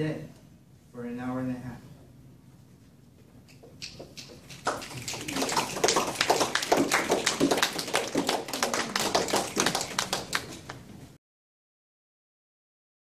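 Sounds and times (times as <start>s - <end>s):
small audience applauding: 3.5s - 11.0s.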